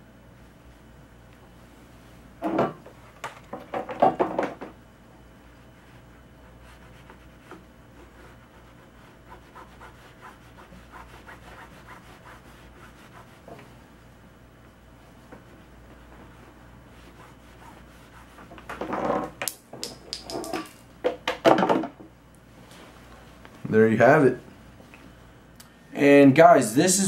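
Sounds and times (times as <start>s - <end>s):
iron rubbing over fabric: 5.4s - 13.6s, 15.9s - 18.6s.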